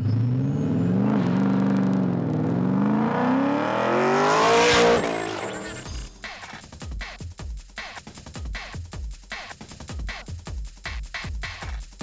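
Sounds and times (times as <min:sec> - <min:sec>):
race car engine accelerating: 0:00.0 - 0:06.0.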